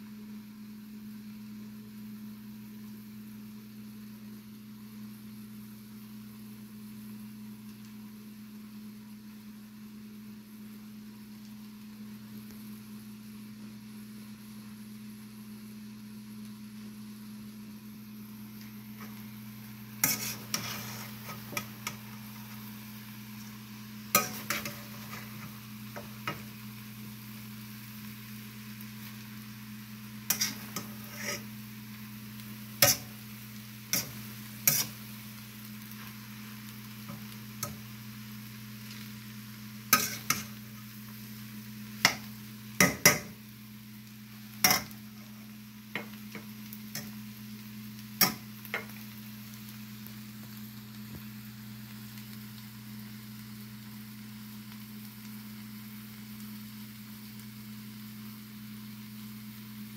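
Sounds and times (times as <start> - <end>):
steady low hum: 0.0 - 56.0
faint sizzle: 0.0 - 59.9
metal spatula scraping a pan: 20.0 - 22.0, 24.1 - 26.4, 30.3 - 31.5, 32.8 - 33.2, 33.9 - 35.0, 39.9 - 40.5, 44.6 - 45.0.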